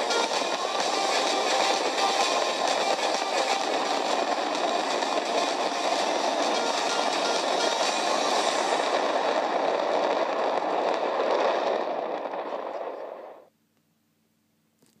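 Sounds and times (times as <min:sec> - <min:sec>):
distant fireworks crackling: 0:00.0 - 0:13.5.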